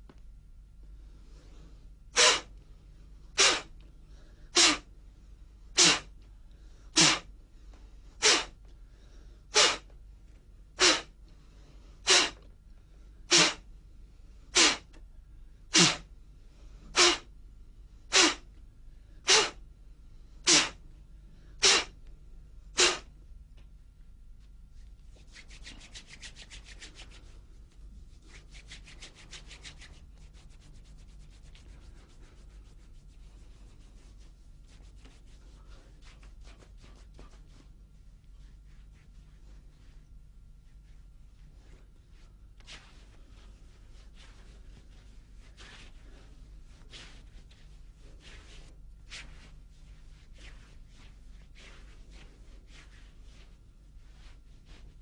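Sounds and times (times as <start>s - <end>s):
hands rubbing: 25.1s - 40.0s.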